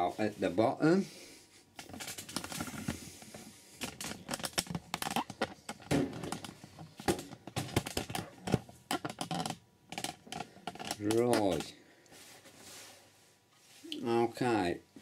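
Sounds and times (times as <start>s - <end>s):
camera handling clicks and rustles: 1.8s - 11.6s.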